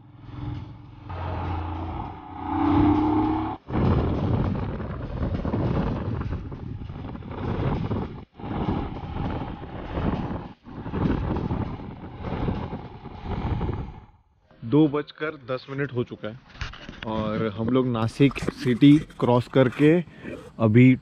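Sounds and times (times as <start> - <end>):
motorcycle engine running: 0.0 - 13.0
wind rushing over microphone: 1.1 - 14.2.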